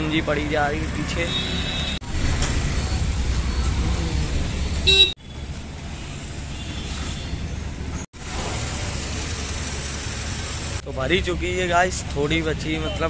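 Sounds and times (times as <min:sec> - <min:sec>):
traffic noise: 0:00.0 - 0:13.0
vehicle engines rumbling: 0:00.0 - 0:13.0
car horn toot: 0:04.8 - 0:05.2.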